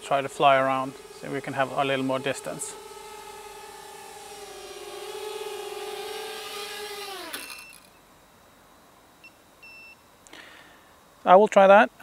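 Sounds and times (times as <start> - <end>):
quadcopter motors whining: 0.0 - 8.1.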